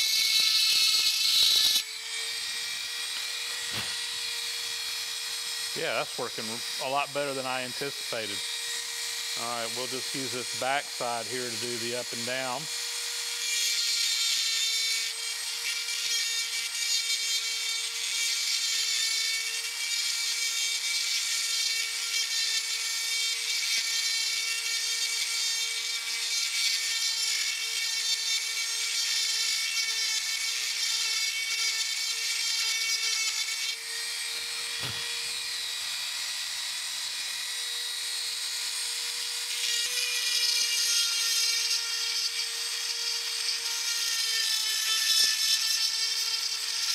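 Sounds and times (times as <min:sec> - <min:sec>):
die grinder whining: 0:00.0 - 0:46.9
hissing grinding on metal: 0:09.3 - 0:12.7.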